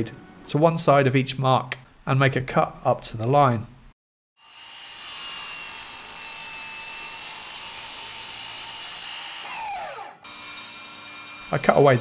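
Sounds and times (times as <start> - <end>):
mitre saw whining: 4.4 - 12.0
saw blade cutting plywood: 4.4 - 12.0.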